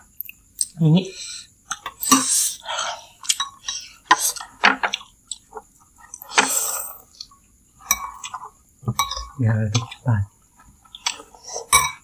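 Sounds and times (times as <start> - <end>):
chopsticks tapping: 7.9 - 10.0
spoon clinking on ceramic bowl: 11.7 - 12.0.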